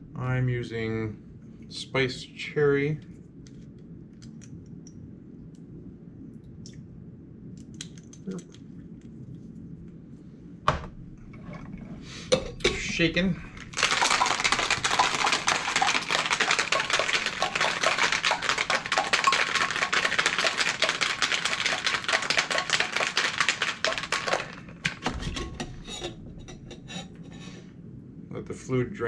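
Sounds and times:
ice rattling in cocktail shaker: 12.6s - 26.2s
ice clinks: 13.5s - 25.0s.

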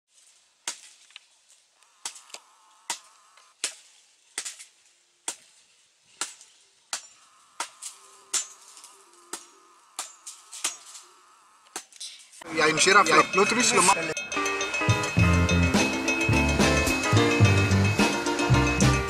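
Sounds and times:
machete chopping coconut husk: 0.2s - 11.1s, 11.7s - 12.1s.

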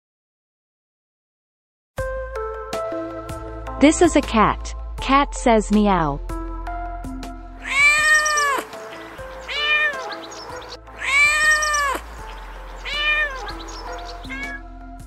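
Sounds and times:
light background music: 2.0s - 15.0s
cat meowing: 7.6s - 14.7s.

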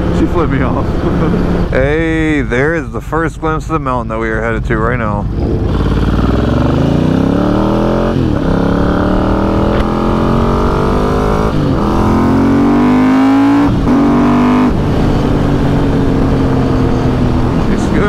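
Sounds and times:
motorcycle engine accelerating: 0.0s - 2.4s, 5.0s - 18.0s.

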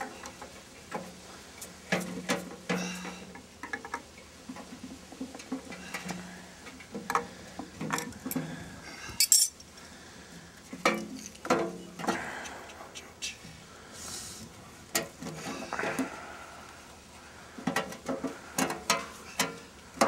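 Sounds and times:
metal tool clinking and scraping: 9.2s - 9.6s.

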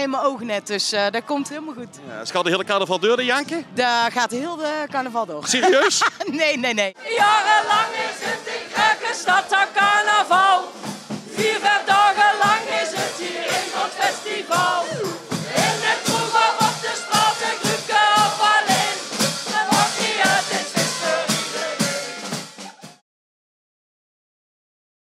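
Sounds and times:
upbeat party song: 5.5s - 6.2s, 7.0s - 23.0s
crowd singing along: 7.0s - 23.0s.

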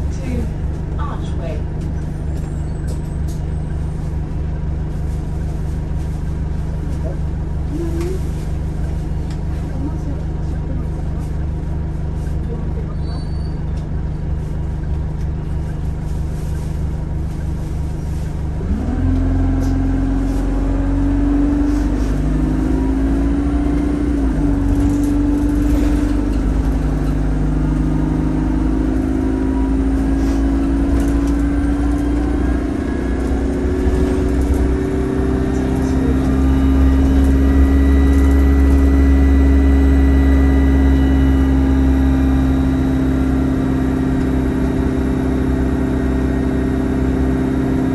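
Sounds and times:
bus engine rumbling and whining: 0.0s - 47.9s.

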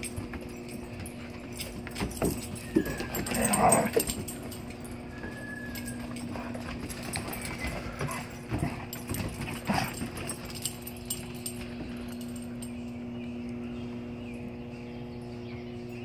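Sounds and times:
dog claws clicking on wooden deck: 0.0s - 5.0s, 5.8s - 12.7s
steady low hum: 0.0s - 16.0s.

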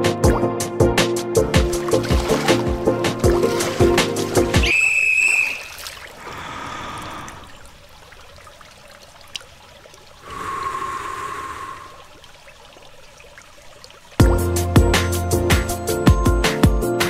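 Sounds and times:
pool water lapping: 1.5s - 15.1s
heavy breathing: 6.2s - 7.6s, 10.2s - 12.1s.

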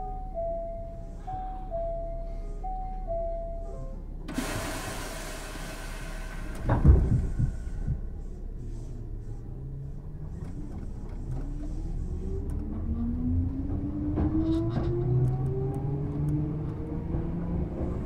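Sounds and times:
train motors humming: 4.2s - 14.8s
air hiss: 4.3s - 7.8s
train doors clunking shut: 4.3s - 8.2s.

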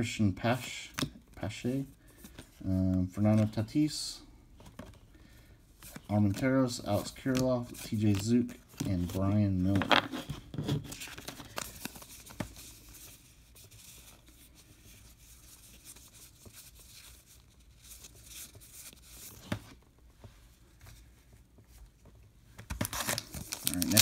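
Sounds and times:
cardboard cards being shuffled: 7.0s - 14.1s, 22.6s - 24.0s.

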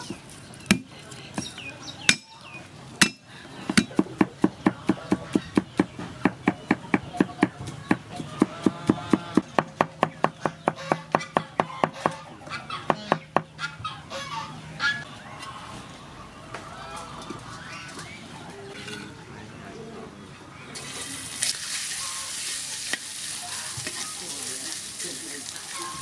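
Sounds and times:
birds calling faintly: 0.0s - 22.5s
cleaver chopping on wooden block: 0.7s - 1.5s, 3.0s - 12.2s.

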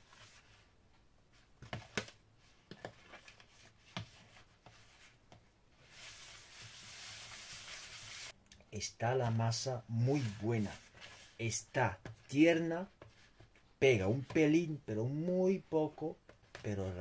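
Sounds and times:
hands rubbing dough in bowl: 2.4s - 8.4s, 9.3s - 14.8s.

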